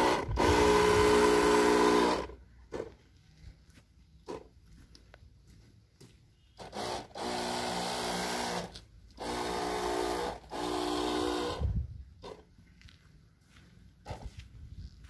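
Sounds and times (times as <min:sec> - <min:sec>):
sprayer pump hum: 0:00.0 - 0:02.9, 0:06.6 - 0:12.4.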